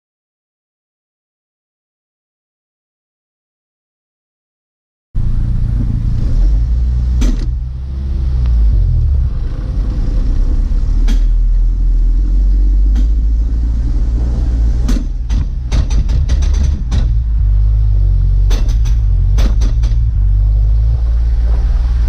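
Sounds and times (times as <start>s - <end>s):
low engine rumble: 5.2s - 22.0s
sharp clicks and knocks: 7.2s - 7.6s, 11.0s - 11.7s, 12.8s - 13.6s, 14.8s - 17.6s, 18.4s - 20.6s.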